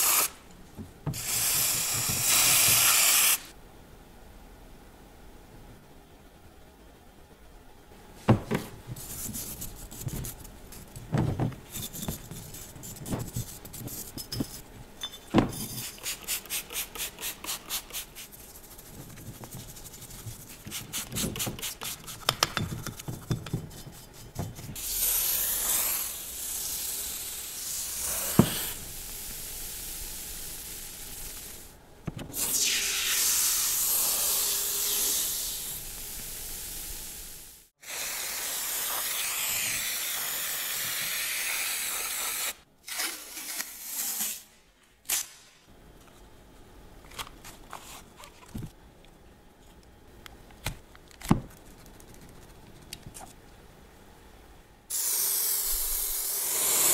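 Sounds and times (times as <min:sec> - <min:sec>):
aerosol can spraying: 0:01.2 - 0:03.5, 0:37.8 - 0:42.6.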